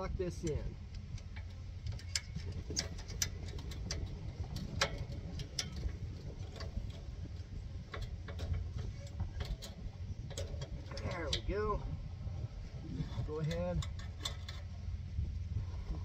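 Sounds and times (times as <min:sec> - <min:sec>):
steady low rumble: 0:00.0 - 0:16.0
metal clicks and taps: 0:00.9 - 0:07.0, 0:07.9 - 0:11.5, 0:13.5 - 0:14.7.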